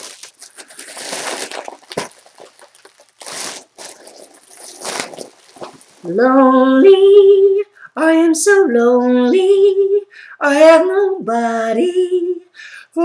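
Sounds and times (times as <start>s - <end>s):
foil balloon crinkling: 0.0s - 6.4s.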